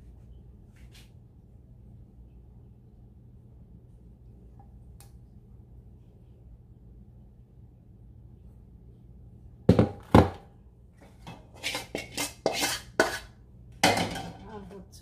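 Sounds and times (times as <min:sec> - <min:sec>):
faint low hum: 0:00.0 - 0:11.6
cookware knocking and clattering: 0:13.8 - 0:14.5.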